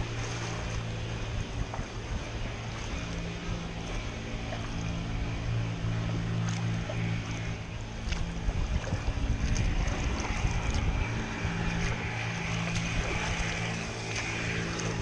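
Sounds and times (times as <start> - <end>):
steady low hum: 0.0 - 15.0
water lapping and splashing: 0.0 - 15.0
wind gusting on microphone: 7.8 - 15.0.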